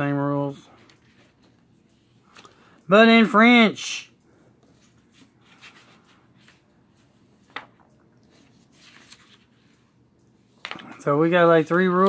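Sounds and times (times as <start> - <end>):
paper pages turning: 8.3 - 9.7.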